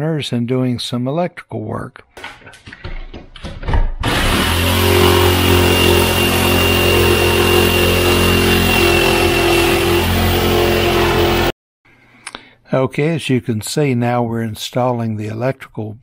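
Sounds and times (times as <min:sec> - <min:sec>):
power drill drilling into wall: 0:04.0 - 0:11.5.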